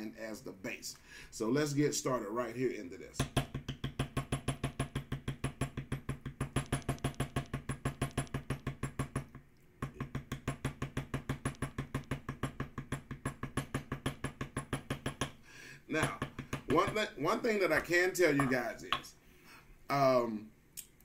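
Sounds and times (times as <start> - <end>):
mallet tapping leather tool: 3.2 - 19.1.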